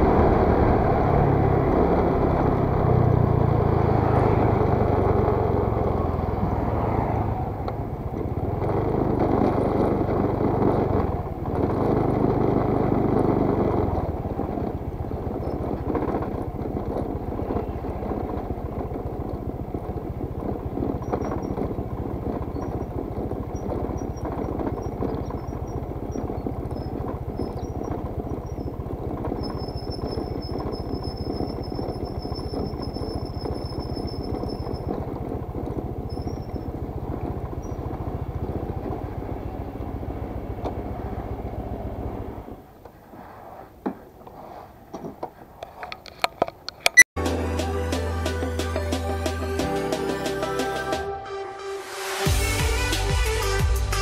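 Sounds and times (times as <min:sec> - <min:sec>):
scooter engine running: 0:00.0 - 0:43.0
road and wind noise: 0:00.0 - 0:47.1.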